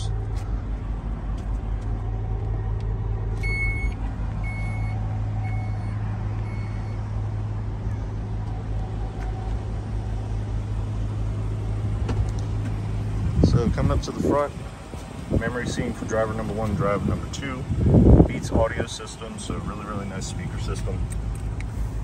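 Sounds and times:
vehicle idling hum: 0.0s - 22.0s
short electronic beeps: 3.4s - 7.0s.

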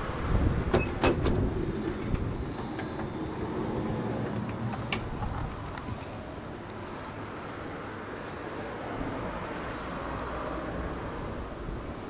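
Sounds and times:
sliding door rumbling open: 0.2s - 6.2s.

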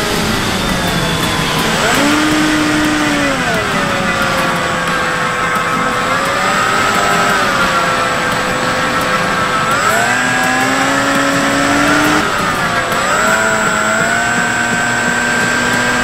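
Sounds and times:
electric motor and propeller whine: 0.0s - 16.0s.

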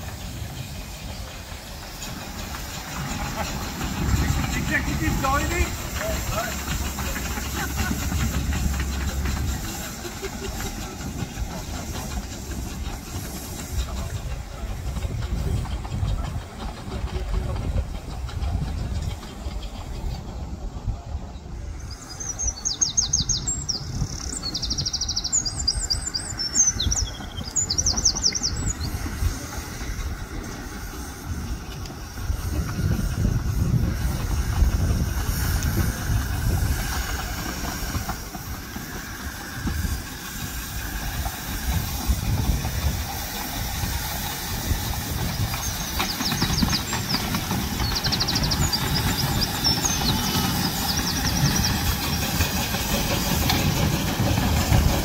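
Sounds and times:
miniature steam locomotive rumbling: 0.0s - 55.0s
birds chirping in high trills: 21.7s - 29.0s, 45.4s - 52.5s.

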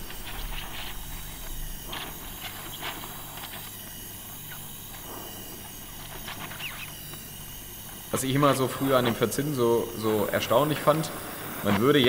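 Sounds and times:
faint crackles: 0.0s - 9.3s
welding torch flame hissing: 0.0s - 12.0s.

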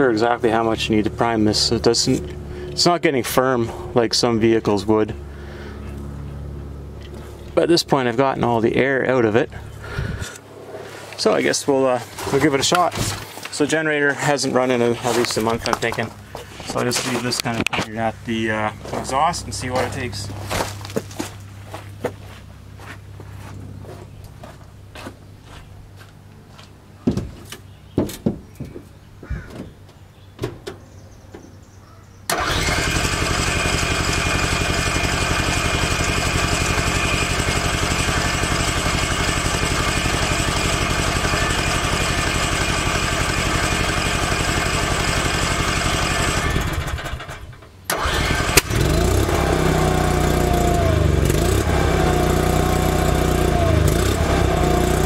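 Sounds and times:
generator running: 0.0s - 27.8s, 32.3s - 55.0s
knocks: 28.0s - 28.9s
generator cranking: 32.3s - 55.0s.

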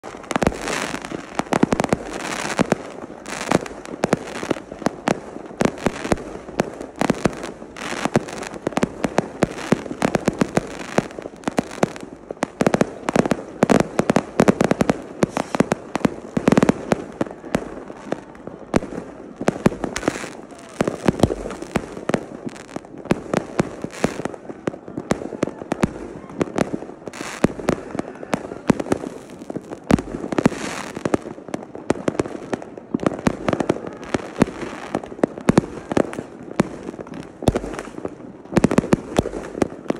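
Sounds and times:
fireworks bangs and crackles: 0.0s - 39.9s.

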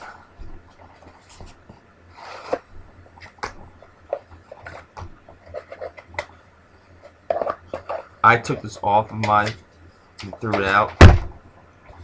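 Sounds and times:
sliding rub: 0.0s - 2.8s
packaging rustling and scraping: 0.0s - 6.3s, 7.0s - 8.9s.

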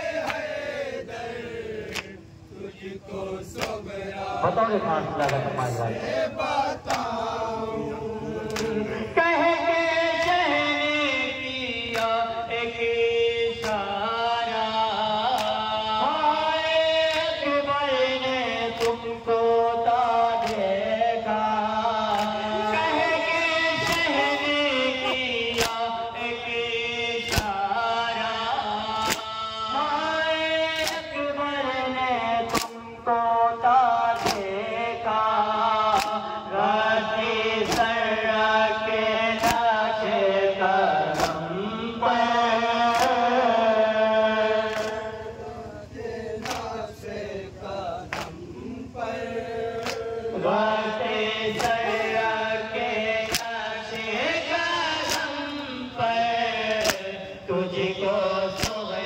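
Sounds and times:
men chanting through loudspeakers: 0.0s - 59.0s
hands slapping chests: 0.2s - 0.5s, 1.8s - 2.2s, 3.6s - 3.8s, 6.8s - 7.1s, 8.4s - 8.8s, 11.9s - 12.2s, 13.6s - 13.8s, 15.3s - 15.6s, 18.8s - 19.0s, 20.4s - 20.7s, 22.1s - 22.4s, 23.8s - 24.1s, 25.1s - 25.9s, 27.2s - 27.6s, 29.0s - 29.3s, 30.8s - 31.0s, 32.4s - 32.8s, 34.1s - 34.5s, 35.9s - 36.3s, 37.6s - 38.0s, 39.4s - 39.8s, 41.1s - 41.4s, 42.9s - 43.3s, 44.7s - 45.0s, 46.4s - 46.8s, 48.1s - 48.4s, 49.8s - 50.1s, 51.5s - 52.0s, 53.2s - 54.1s, 55.0s - 55.4s, 56.6s - 57.1s, 58.5s - 58.8s.

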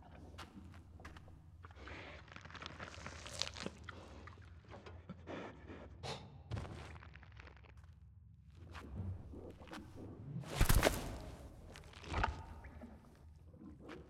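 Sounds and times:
crunches and scrapes on rock: 10.5s - 12.8s.

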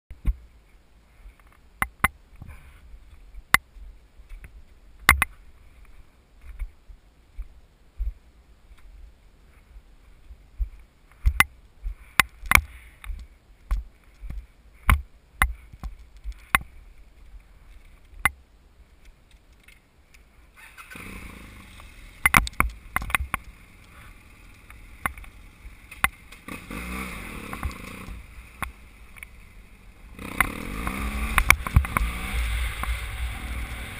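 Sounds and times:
sharp knocks and clicks: 1.8s - 2.2s, 22.2s - 23.6s
motorcycle engine: 20.7s - 33.9s.

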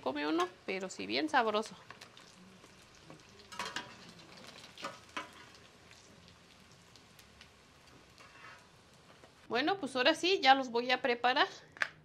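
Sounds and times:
food sizzling in oil: 0.0s - 10.8s
metal spatula scraping a pan: 3.5s - 5.7s, 8.2s - 8.7s.

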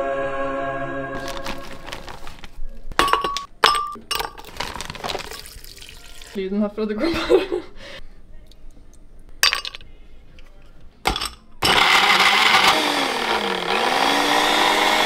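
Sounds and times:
blender crushing ice: 1.2s - 2.2s, 11.6s - 15.0s.

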